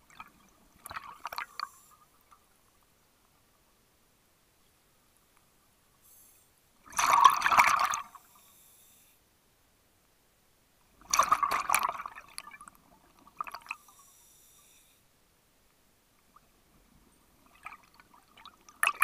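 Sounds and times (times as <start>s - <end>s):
underwater breath bubbles: 6.9s - 9.0s.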